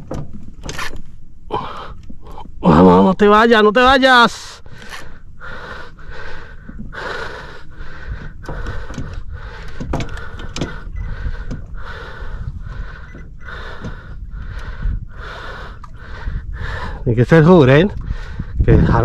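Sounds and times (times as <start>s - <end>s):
low steady rumble: 0.0s - 19.0s
man panting hard: 5.4s - 10.4s, 11.1s - 17.0s.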